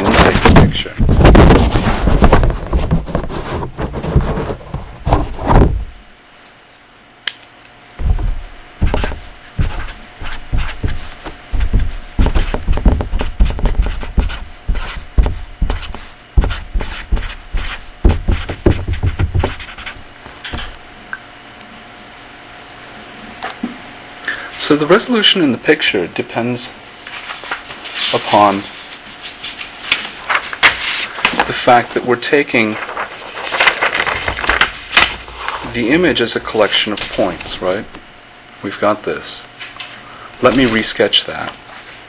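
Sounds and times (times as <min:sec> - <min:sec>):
faint steady hum: 0:00.0 - 0:42.0
rubbing tapping and knocking: 0:08.0 - 0:17.3, 0:18.0 - 0:19.8.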